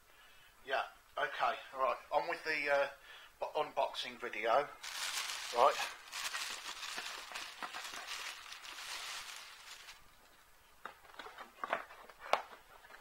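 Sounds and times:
plastic bag rustling: 4.8s - 10.1s.

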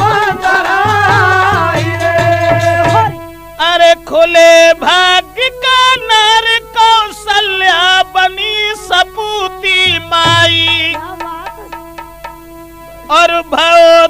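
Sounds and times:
high melodic folk line: 9.8s - 13.0s.

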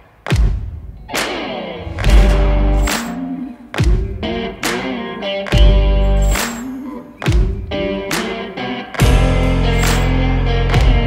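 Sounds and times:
guitar rock music: 1.1s - 11.0s
heavy low hit: 1.8s - 4.4s.

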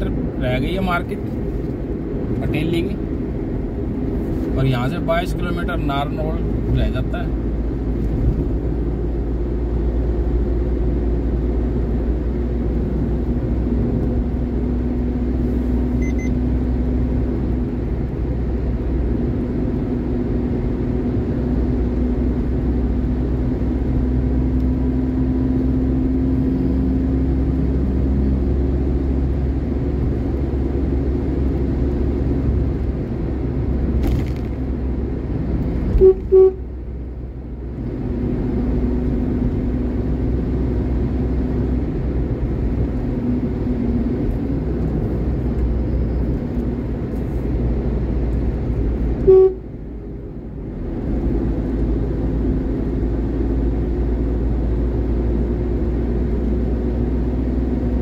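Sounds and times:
vehicle engine and road noise: 0.0s - 58.0s
short horn blasts: 35.9s - 36.7s, 49.2s - 49.7s.

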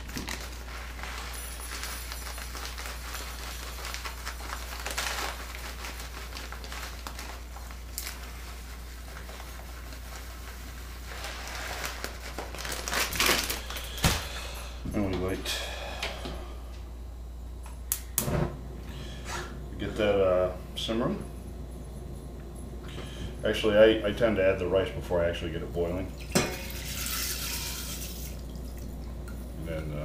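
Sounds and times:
plastic bag crinkling: 0.0s - 14.7s
steady low hum: 0.0s - 30.0s
rice pouring into cup: 26.6s - 28.4s.

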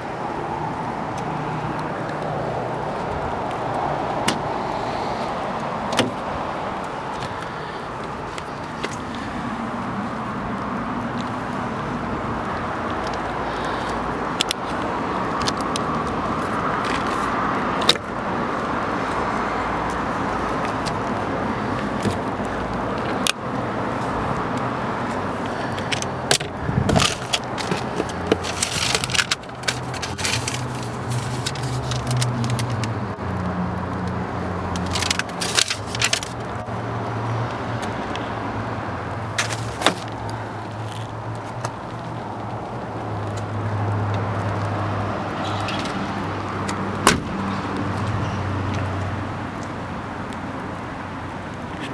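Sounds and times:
clicks and knocks from car door: 5.9s - 6.2s, 47.0s - 47.4s
papers rustling: 25.6s - 32.8s, 34.8s - 36.4s, 39.4s - 40.3s.

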